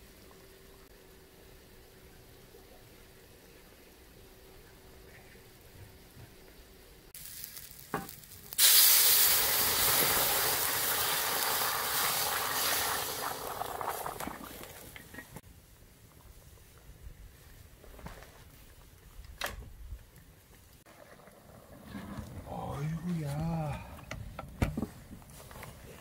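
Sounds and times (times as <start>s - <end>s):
loud sizzling hiss: 0.0s - 15.8s.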